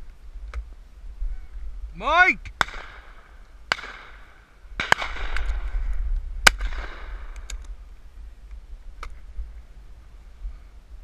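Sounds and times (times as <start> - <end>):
wind rumble on microphone: 0.0 - 3.3, 4.6 - 11.0
shotgun shots: 2.6 - 5.6, 6.4 - 7.4.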